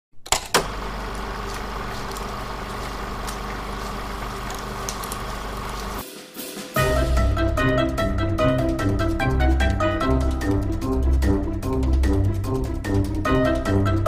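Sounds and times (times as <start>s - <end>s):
film projector whirring: 0.3s - 6.0s.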